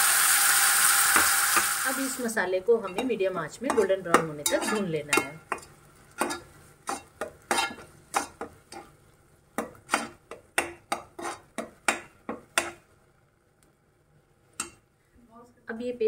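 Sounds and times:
metal spoon scraping a pot: 0:02.9 - 0:08.9, 0:09.6 - 0:12.8.

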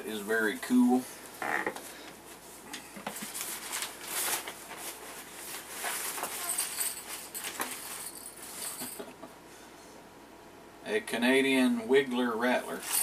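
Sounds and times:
packaging rustling and crinkling: 0:03.0 - 0:09.0.

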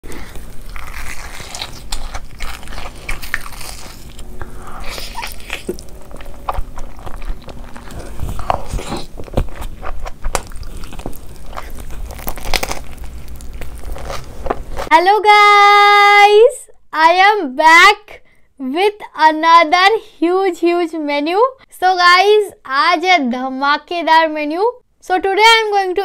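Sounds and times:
chewing: 0:00.1 - 0:14.9
crunchy bites: 0:00.1 - 0:14.9.

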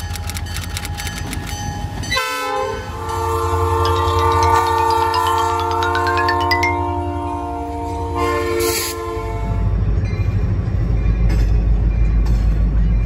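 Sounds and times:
locomotive air horn: 0:02.1 - 0:09.8
rising tone with rapid ticks: 0:03.8 - 0:06.8.

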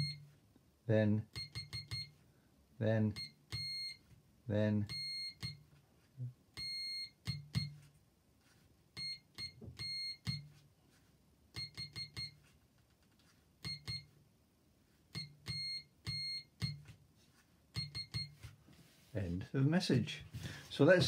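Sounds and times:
buzzer beeping morse code: 0:00.0 - 0:00.3, 0:01.3 - 0:02.2, 0:03.0 - 0:04.0, 0:04.8 - 0:05.6, 0:09.0 - 0:10.5, 0:11.6 - 0:12.4, 0:13.6 - 0:14.1, 0:15.2 - 0:16.8, 0:17.8 - 0:18.4.

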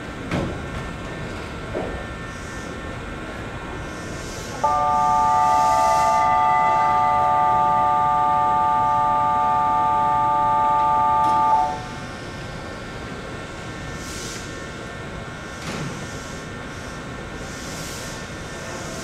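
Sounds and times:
electronic departure chord: 0:04.6 - 0:12.2.

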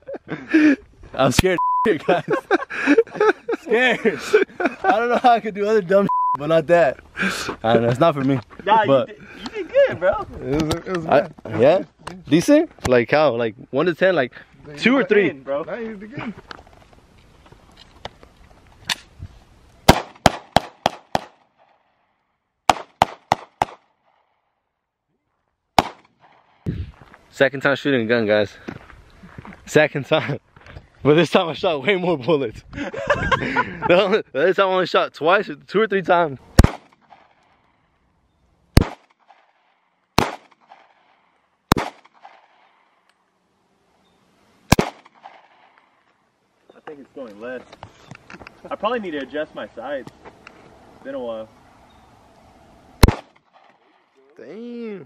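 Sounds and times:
handgun shots: 0:19.9 - 0:21.4, 0:25.8 - 0:26.4, 0:36.6 - 0:37.2, 0:38.8 - 0:39.4, 0:40.2 - 0:40.9, 0:41.7 - 0:42.7, 0:44.7 - 0:45.7, 0:53.0 - 0:53.4.

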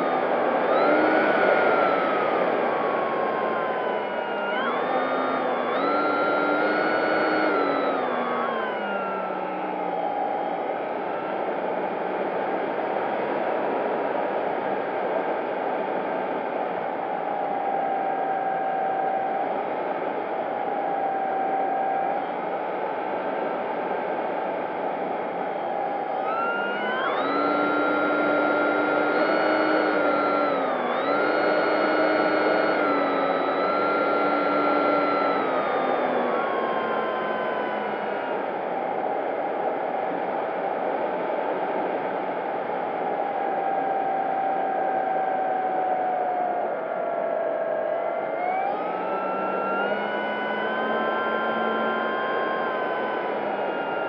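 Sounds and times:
motor and propeller whine: 0:00.0 - 0:11.4, 0:24.9 - 0:42.4, 0:43.0 - 0:54.0.

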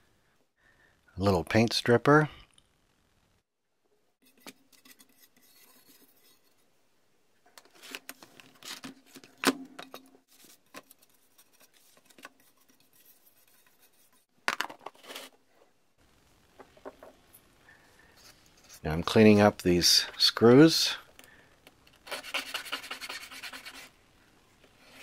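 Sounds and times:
toothbrush bristles rasping: 0:22.1 - 0:23.9.

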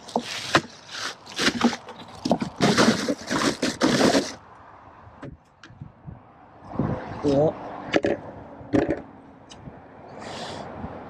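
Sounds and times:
plastic bag of ice rustling: 0:00.0 - 0:04.4.

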